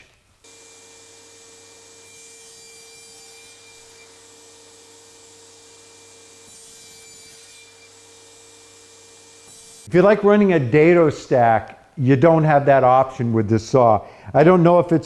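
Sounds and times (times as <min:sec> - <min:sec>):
saw blade cutting board: 0:00.0 - 0:09.9
table saw whining: 0:00.0 - 0:10.0.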